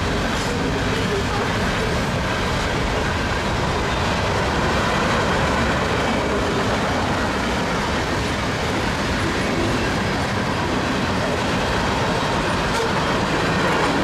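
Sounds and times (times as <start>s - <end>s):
freight train wheels rumbling on rails: 0.0s - 14.0s.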